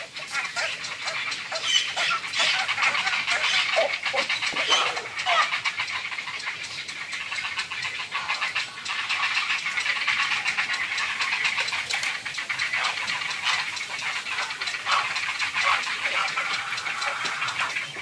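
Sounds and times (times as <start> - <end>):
heron nestlings chattering: 0.0 - 18.0
rapid clicks: 0.0 - 18.0.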